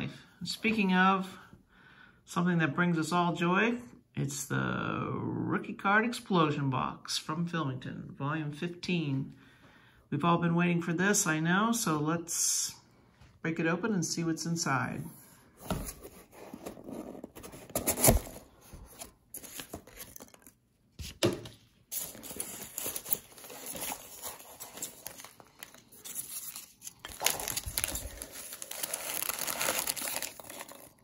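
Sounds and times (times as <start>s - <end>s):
cardboard box being opened: 15.6s - 20.6s, 21.9s - 31.0s
rummaging through packing peanuts: 15.9s - 20.6s, 21.9s - 31.0s.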